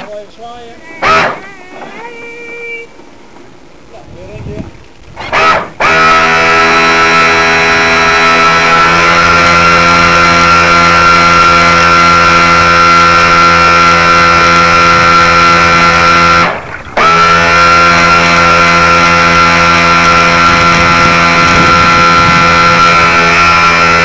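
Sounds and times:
model boat motor whining: 0:05.2 - 0:24.0.

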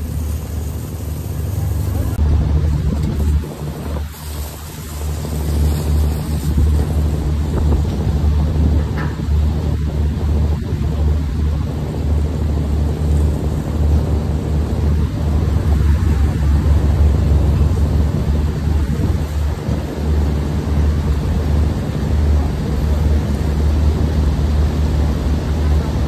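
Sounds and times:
rushing hiss: 0:00.0 - 0:02.2, 0:03.2 - 0:07.4
machinery drone: 0:00.0 - 0:26.0.

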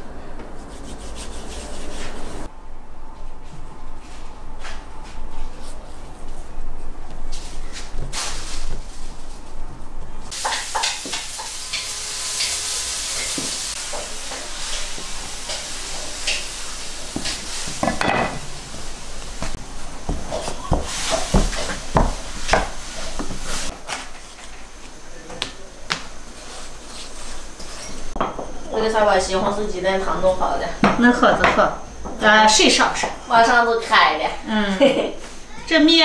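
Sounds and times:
dough worked on wooden board: 0:00.5 - 0:02.5, 0:19.4 - 0:23.7.

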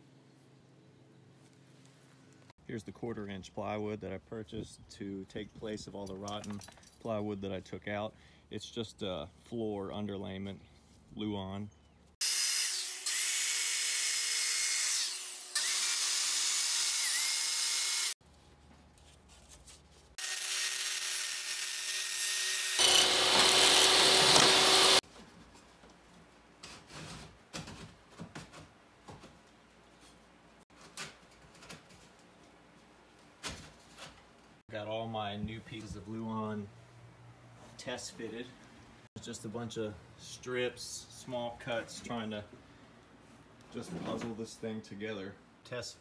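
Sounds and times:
table saw ripping plywood: 0:20.2 - 0:25.0.

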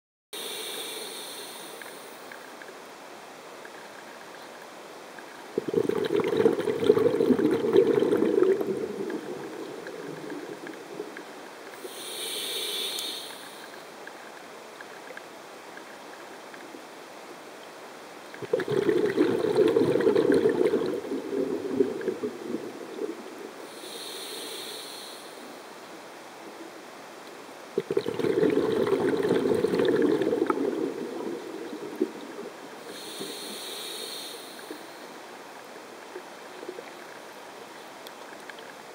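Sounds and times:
regulator inhalation hiss: 0:00.4 - 0:02.3, 0:11.8 - 0:13.8, 0:23.7 - 0:25.6, 0:32.8 - 0:35.1
regulator bubbling exhalations: 0:05.6 - 0:13.8, 0:18.4 - 0:25.4, 0:27.8 - 0:32.2.

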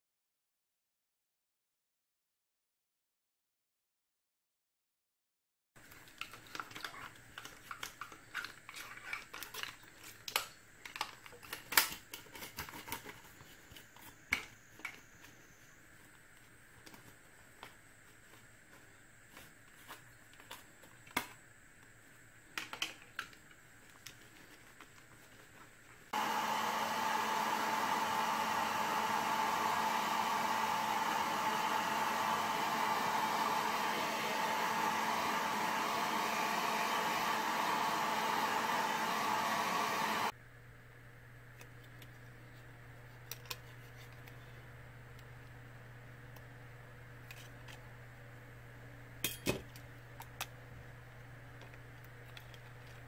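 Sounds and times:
hair dryer running: 0:26.1 - 0:40.4.

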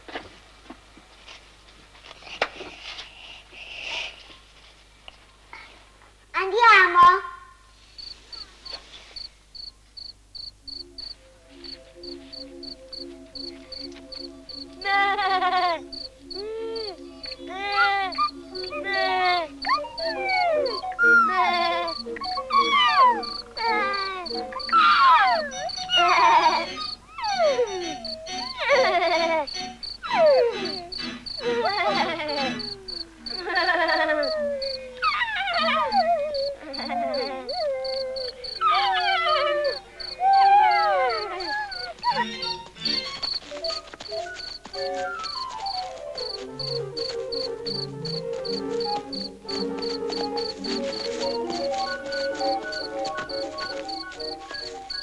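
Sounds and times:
crickets chirping: 0:07.9 - 0:34.9, 0:35.5 - 0:55.0
film score sliding tones: 0:29.4 - 0:34.8, 0:39.6 - 0:55.0.

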